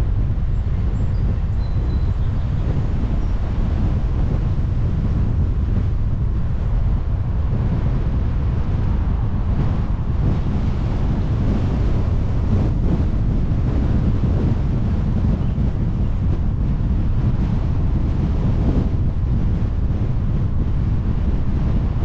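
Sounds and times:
car driving rumble: 0.0 - 22.0
wind noise on microphone: 0.0 - 22.0.

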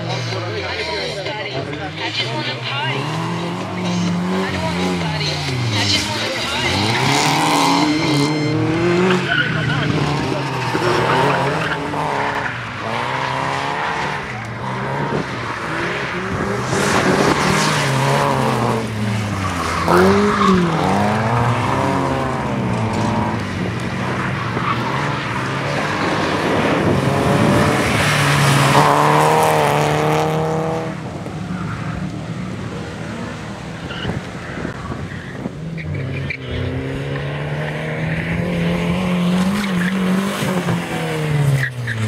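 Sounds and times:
car engine revving: 0.0 - 42.0.

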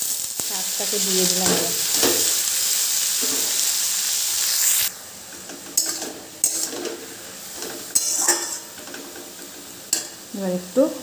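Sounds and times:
greens sizzling in hot oil: 0.0 - 11.0
metal spatula scraping pan: 5.3 - 10.2.

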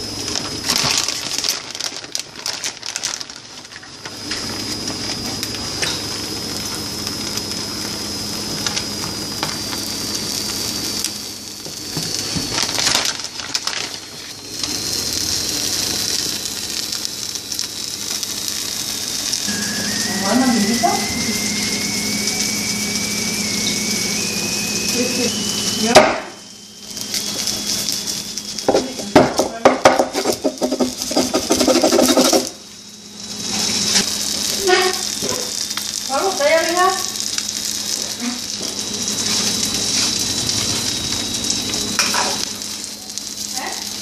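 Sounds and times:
eggs sizzling in a skillet: 0.0 - 44.0
crinkling and clattering: 0.3 - 4.4, 12.2 - 14.3.

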